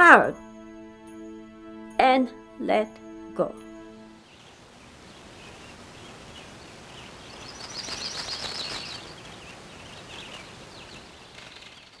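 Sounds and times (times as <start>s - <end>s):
steady background hiss: 0.0s - 11.9s
birds chirping: 4.2s - 11.0s.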